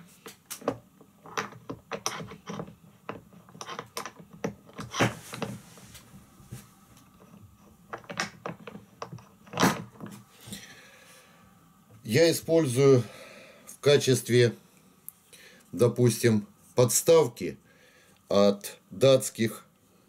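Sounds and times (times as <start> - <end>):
metal parts clicking and knocking: 0.6 - 5.5, 7.2 - 10.1.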